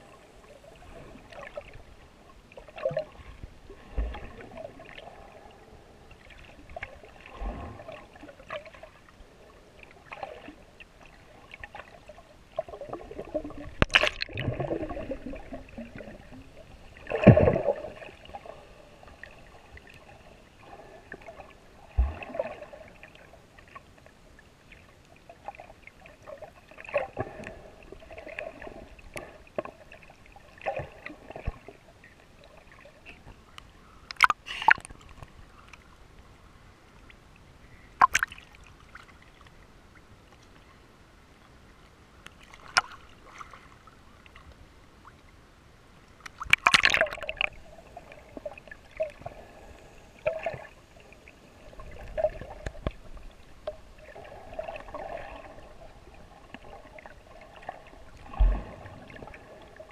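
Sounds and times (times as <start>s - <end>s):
muffled water sloshing: 0.0s - 33.4s, 46.0s - 59.9s
underwater surges and thumps: 0.0s - 40.8s, 46.0s - 59.9s.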